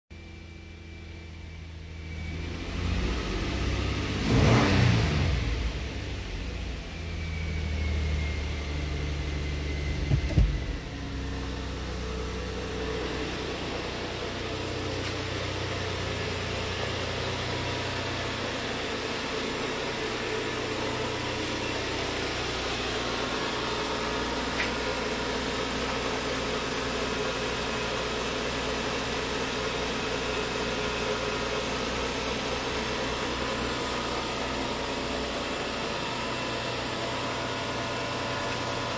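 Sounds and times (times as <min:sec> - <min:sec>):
car engine fast idle: 0:05.9 - 0:38.9.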